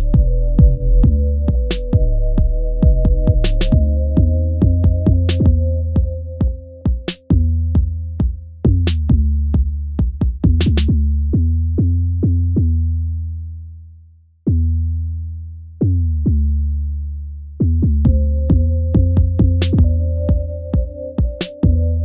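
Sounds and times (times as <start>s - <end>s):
electronic hip-hop beat: 0.0s - 11.0s, 18.0s - 22.0s
deep bass line: 0.0s - 22.0s.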